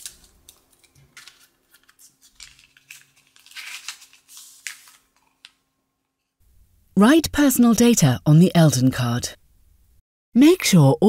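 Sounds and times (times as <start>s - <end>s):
paper pouch tearing and crinkling: 0.0s - 5.6s.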